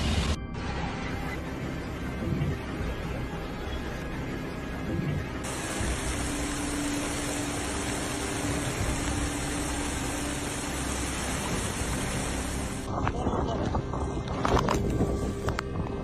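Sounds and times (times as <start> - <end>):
heavy rain: 0.0 - 13.1
wind: 0.0 - 16.0
bright hiss: 5.5 - 12.9.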